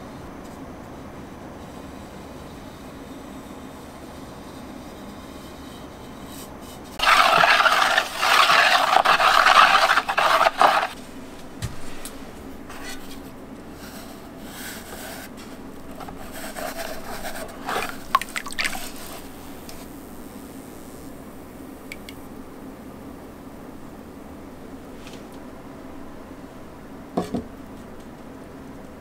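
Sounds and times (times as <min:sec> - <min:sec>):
rough rubbing scrape: 0:04.1 - 0:11.0, 0:12.7 - 0:19.6
plate dipped in liquid glaze: 0:07.0 - 0:11.0, 0:17.1 - 0:19.4.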